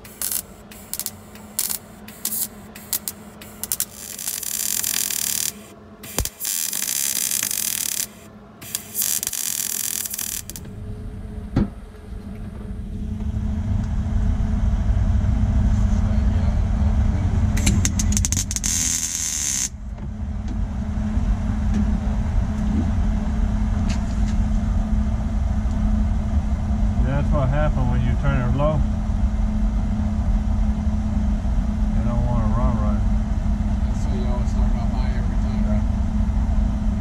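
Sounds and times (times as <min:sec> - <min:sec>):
sharp welder clicks: 0:00.0 - 0:10.7, 0:17.6 - 0:19.7
welding hiss: 0:00.0 - 0:10.7, 0:18.1 - 0:19.7
low machine rumble: 0:00.0 - 0:37.0.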